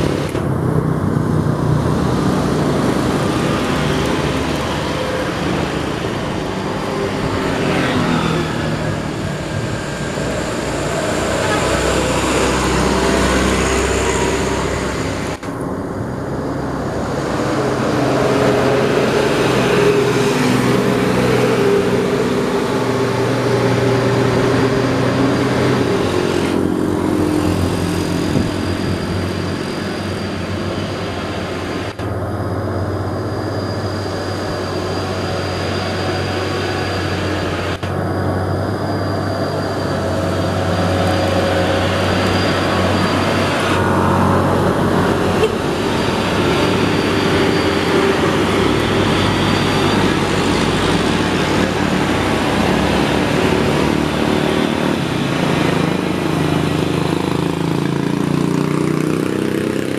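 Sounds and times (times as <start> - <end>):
truck diesel engine labouring: 0.0 - 59.9.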